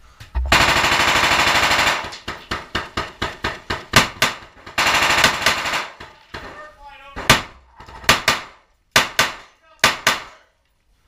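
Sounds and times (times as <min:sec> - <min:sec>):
automatic gunfire: 0:00.5 - 0:06.2, 0:07.2 - 0:10.3.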